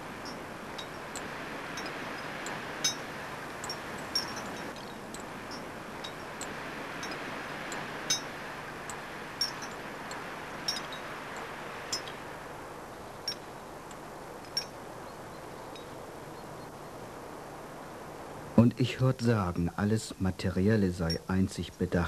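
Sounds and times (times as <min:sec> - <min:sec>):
light metallic clinks: 0:00.0 - 0:12.2, 0:13.2 - 0:14.8, 0:21.0 - 0:21.4.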